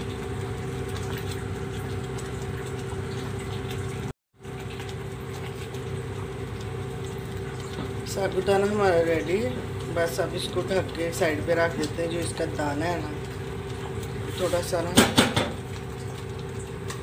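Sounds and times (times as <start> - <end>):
pudding bubbling in a pot: 0.0 - 17.0
gas burner hum: 4.8 - 17.0.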